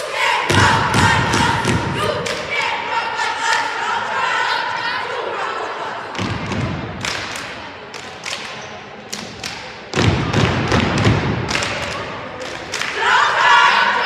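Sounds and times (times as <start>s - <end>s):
people clapping: 0.6s - 2.7s, 6.5s - 13.6s.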